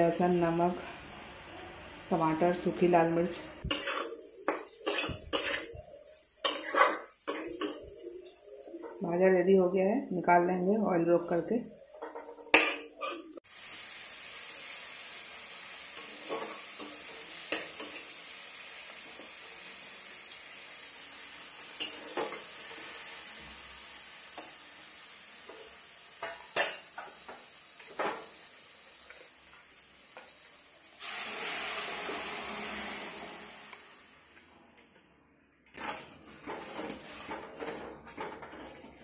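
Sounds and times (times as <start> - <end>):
metal spatula scraping pan: 3.6 - 9.2, 16.0 - 18.0, 35.7 - 39.0
spices sizzling in oil: 3.6 - 34.4
dal pouring into pan: 31.0 - 33.7.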